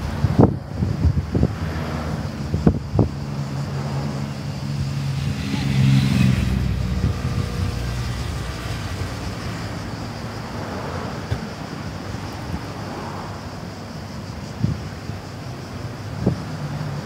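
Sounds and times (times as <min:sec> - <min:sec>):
car passing: 0:00.0 - 0:17.0
motorcycle passing: 0:00.8 - 0:11.3.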